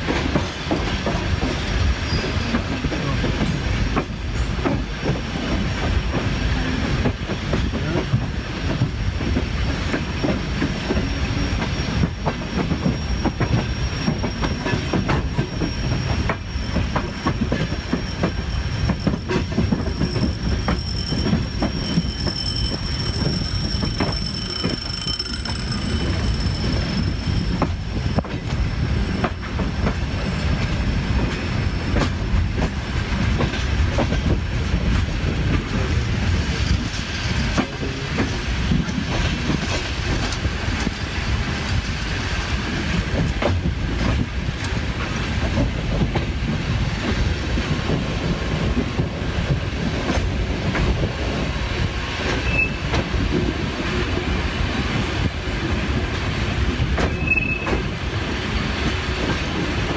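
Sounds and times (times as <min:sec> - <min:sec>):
train wheels rumbling: 0:00.0 - 0:59.9
wheels clicking over rail joints: 0:07.0 - 0:35.7.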